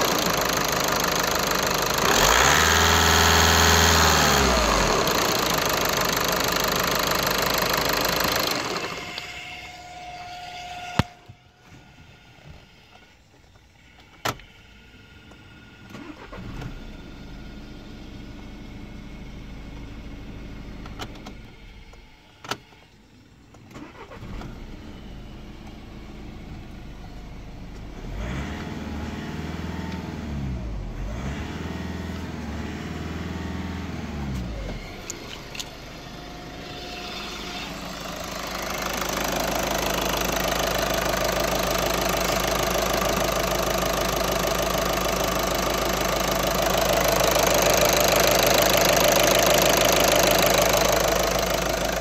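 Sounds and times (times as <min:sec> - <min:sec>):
diesel injector clatter: 0:00.0 - 0:09.4, 0:34.3 - 0:52.0
diesel engine idling: 0:00.0 - 0:11.2, 0:32.1 - 0:52.0.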